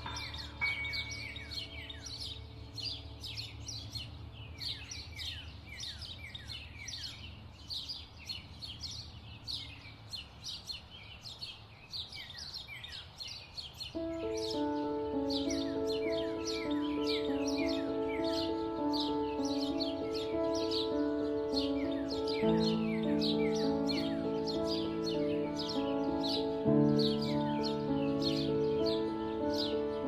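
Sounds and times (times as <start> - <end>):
instrumental music: 0.0 - 4.0, 14.0 - 30.0
small birds chirping: 0.0 - 30.0.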